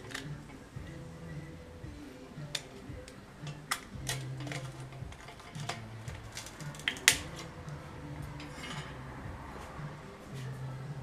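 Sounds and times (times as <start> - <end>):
soft background music: 0.0 - 11.0
metallic clicks and clinks: 2.5 - 7.6.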